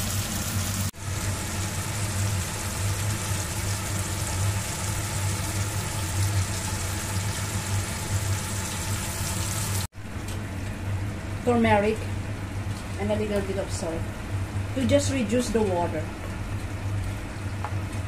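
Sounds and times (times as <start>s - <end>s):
food sizzling in a wok: 0.0s - 9.9s.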